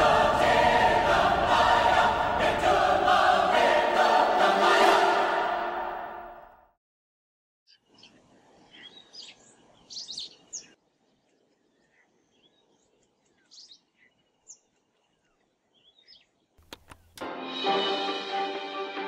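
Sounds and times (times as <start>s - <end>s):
songbirds chirping: 7.7s - 17.2s.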